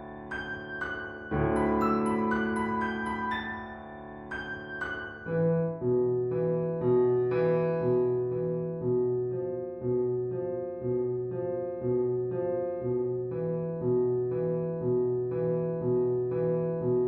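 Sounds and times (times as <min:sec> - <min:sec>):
slow piano notes: 0:00.0 - 0:17.0.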